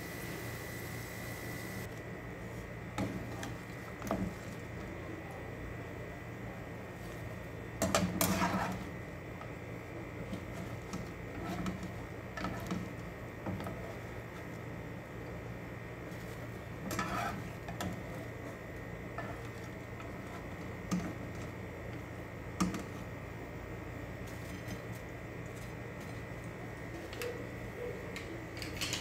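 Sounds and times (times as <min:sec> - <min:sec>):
steady low hum: 0:00.0 - 0:29.0
metal turner scraping frying pan: 0:08.0 - 0:08.9, 0:16.8 - 0:17.8.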